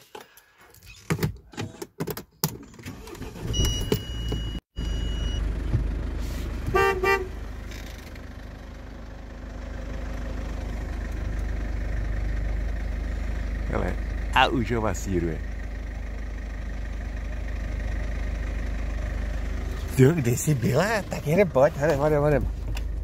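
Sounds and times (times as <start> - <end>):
high beep: 3.5 - 5.4
car engine running: 4.1 - 23.0
car horn toots: 6.6 - 7.4.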